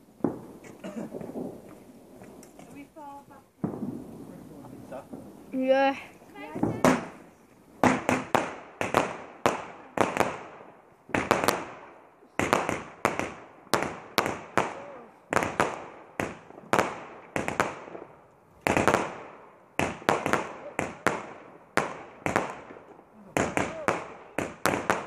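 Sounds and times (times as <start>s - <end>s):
firework bangs: 0.0s - 25.0s.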